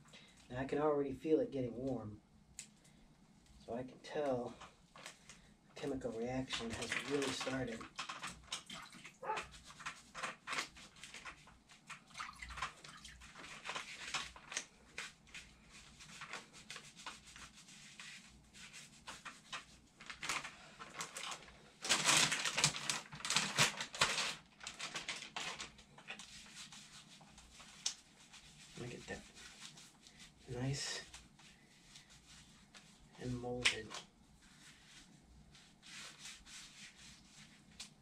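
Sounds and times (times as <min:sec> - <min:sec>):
gloved hands rubbing wet cast: 0:04.3 - 0:20.0, 0:25.6 - 0:38.0.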